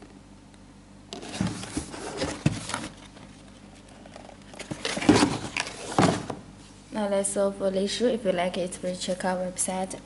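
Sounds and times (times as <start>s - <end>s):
cardboard box handled on wooden table: 1.2s - 3.2s.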